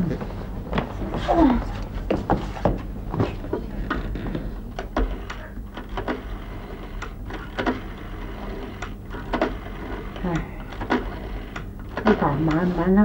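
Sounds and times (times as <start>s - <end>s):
low mains hum: 0.0s - 13.0s
rotary dial clicking: 4.8s - 12.7s.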